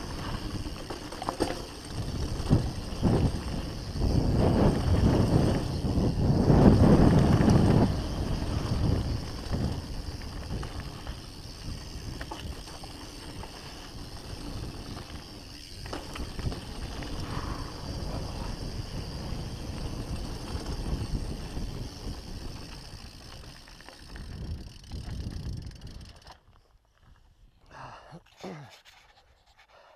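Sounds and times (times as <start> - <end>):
bike tyres rolling over gravel: 0.0 - 27.5
wind on microphone: 1.8 - 12.6.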